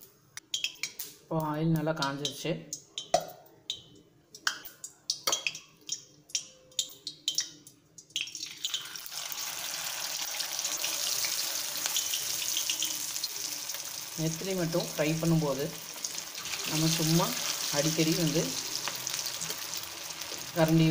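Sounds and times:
fish sizzling in hot oil: 8.4 - 20.9.

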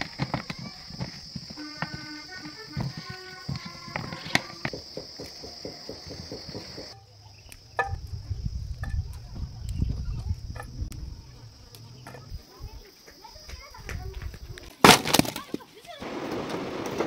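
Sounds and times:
insects chirring: 0.0 - 17.0
low rumble: 8.0 - 12.4.

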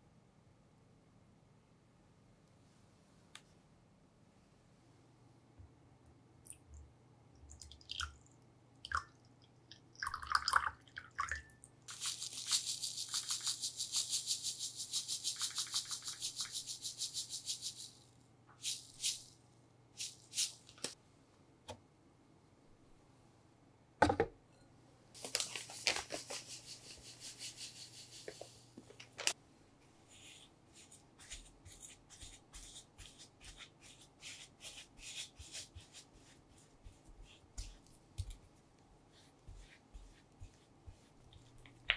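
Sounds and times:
water poured into glass bowl: 10.0 - 12.5.

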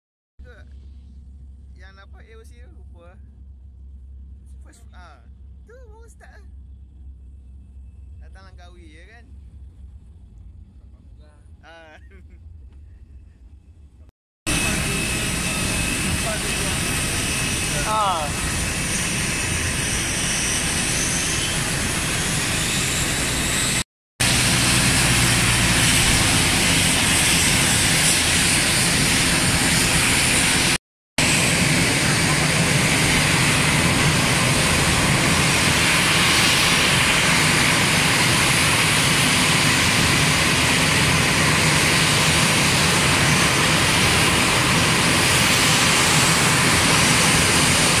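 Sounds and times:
jet engines running: 14.5 - 48.0.

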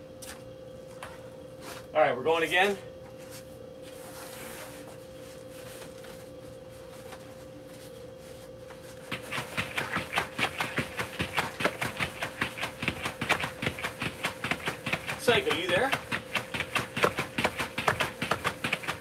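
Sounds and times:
steady low hum: 0.0 - 19.0
battle ropes slapping floor: 9.1 - 19.0.

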